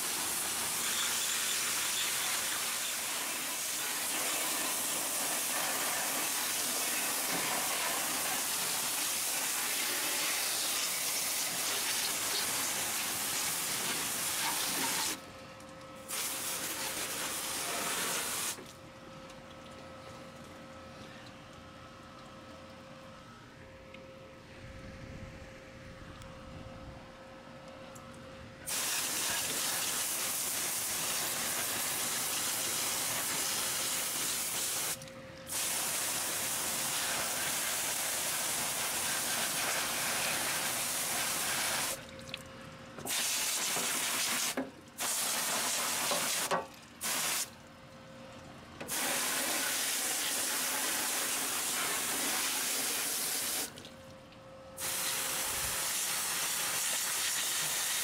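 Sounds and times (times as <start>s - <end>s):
pressure washer spraying water: 0.0s - 15.2s, 16.1s - 18.6s, 28.7s - 42.0s, 43.1s - 47.5s, 48.9s - 53.8s, 54.8s - 58.0s.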